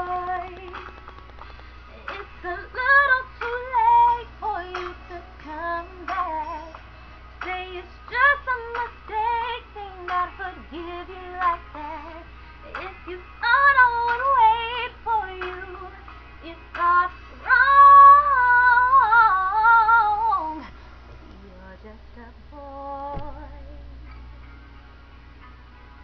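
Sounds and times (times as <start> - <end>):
woman singing with vibrato: 0.0 - 0.8, 21.3 - 24.1
low hum: 18.2 - 26.0.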